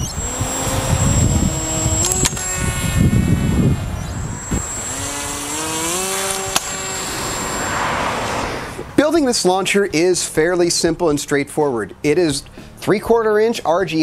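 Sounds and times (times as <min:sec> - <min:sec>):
electric motor and propeller whining: 0:00.0 - 0:08.9.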